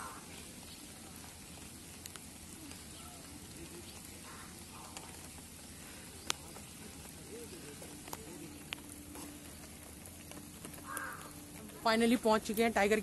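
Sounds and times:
rain falling: 0.0 - 13.0
sharp ticks: 6.2 - 13.0.

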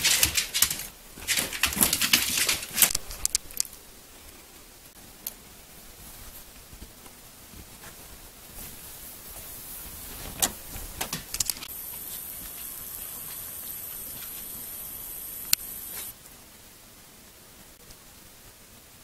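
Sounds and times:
dog clattering at pet door: 0.0 - 3.0.

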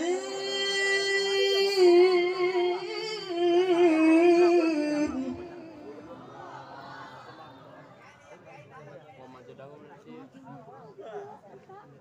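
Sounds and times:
man reciting through a microphone: 0.0 - 6.5
faint crowd murmur: 0.0 - 12.0.

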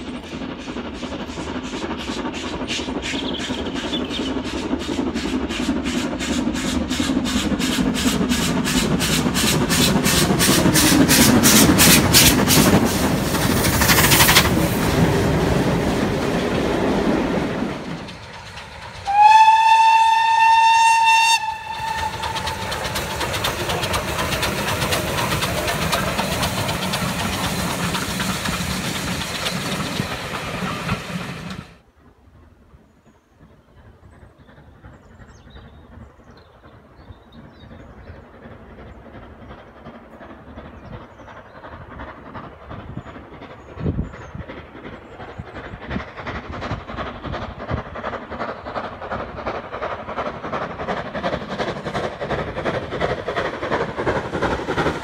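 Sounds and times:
steam locomotive exhaust beats: 0.0 - 55.0
train wheels rumbling: 0.0 - 55.0
steam whistle: 19.1 - 22.5.

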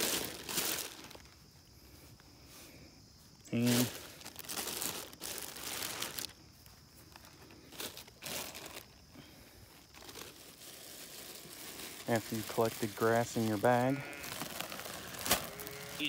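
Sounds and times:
plastic bag crinkling: 0.0 - 1.4, 3.5 - 6.4, 7.1 - 9.1, 9.8 - 16.0.

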